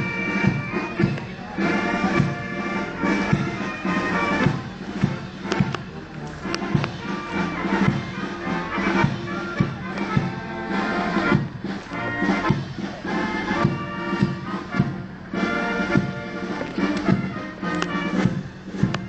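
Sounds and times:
brass band playing a march: 0.0 - 19.0
drum strokes: 0.0 - 19.0.

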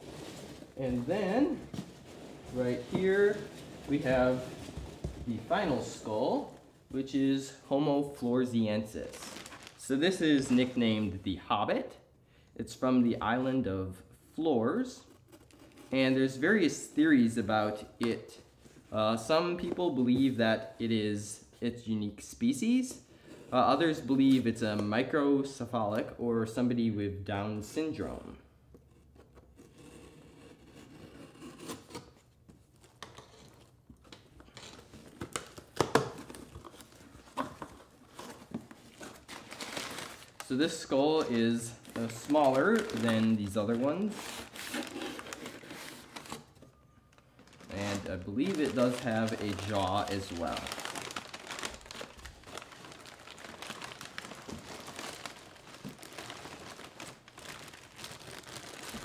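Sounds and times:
paper and plastic crinkling: 0.0 - 6.6, 9.0 - 11.0, 32.6 - 59.0
cardboard tearing and rustling: 9.1 - 9.8, 34.6 - 40.4, 41.2 - 46.6, 47.4 - 59.0.

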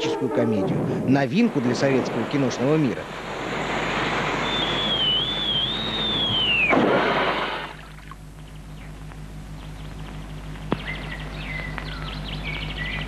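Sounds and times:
rush of noise: 0.7 - 7.8
falling whistle sound effect: 4.3 - 7.8.

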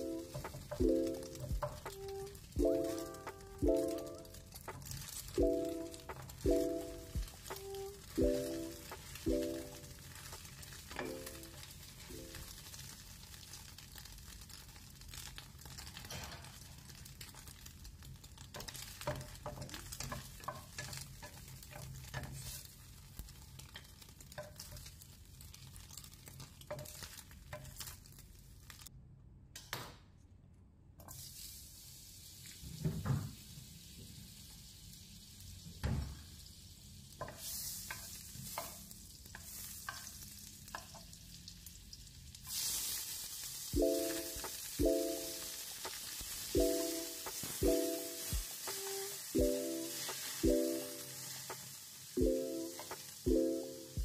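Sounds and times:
food sizzling: 0.0 - 28.9, 31.1 - 54.0
spatula stirring in frying pan: 18.4 - 28.0, 37.2 - 41.2
prawns sizzling loudly: 42.5 - 54.0.

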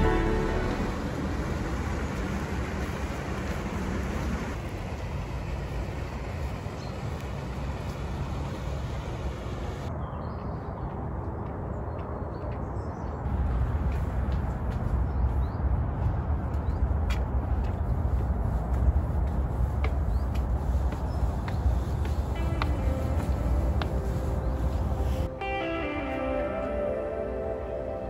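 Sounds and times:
low rumble with hiss: 0.0 - 9.9.

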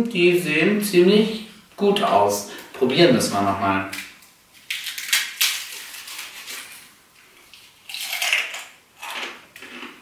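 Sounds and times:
cookie crunch from biting: 7.9 - 10.0.

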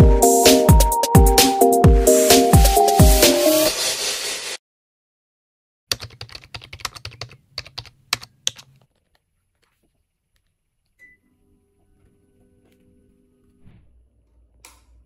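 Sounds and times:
air conditioner beep: 11.0 - 11.3.

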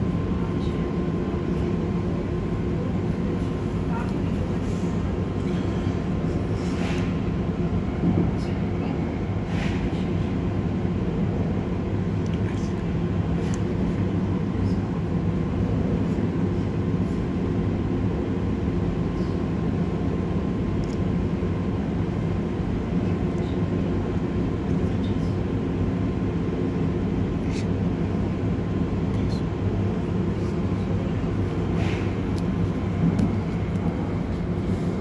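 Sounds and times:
train cabin rumble: 25.1 - 35.0.

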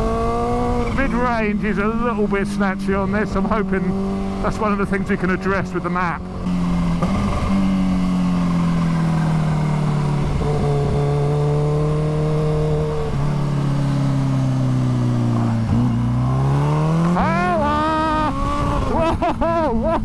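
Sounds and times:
motorcycle engine running: 0.0 - 20.0
wind rush: 17.7 - 19.0.

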